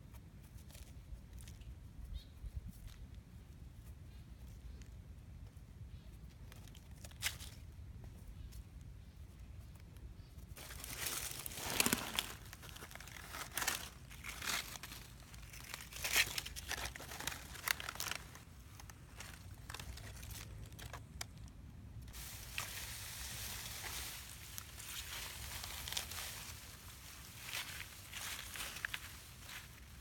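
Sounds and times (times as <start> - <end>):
dry leaves crackling and rustling: 10.6 - 21.5, 22.1 - 30.0.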